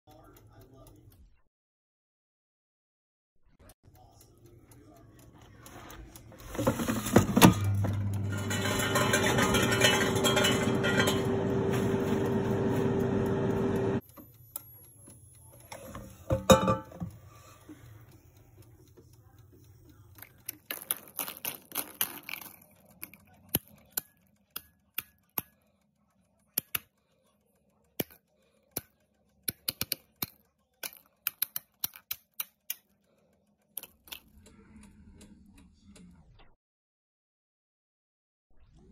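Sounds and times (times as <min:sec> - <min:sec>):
air fryer fan humming: 0:04.9 - 0:20.1.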